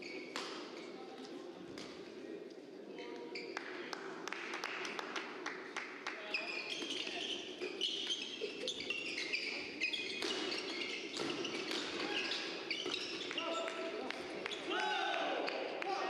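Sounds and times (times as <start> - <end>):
shoes squeaking on court: 0.0 - 1.0, 6.3 - 13.9
murmur of hall: 0.0 - 16.0.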